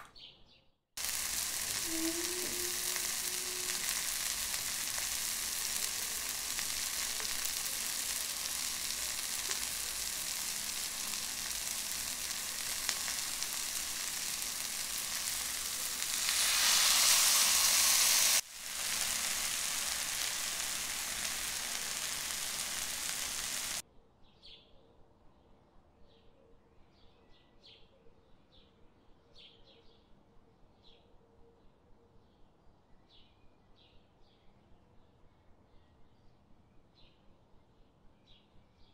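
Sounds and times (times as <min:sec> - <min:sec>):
prawns sizzling in a pan: 0:01.0 - 0:23.8.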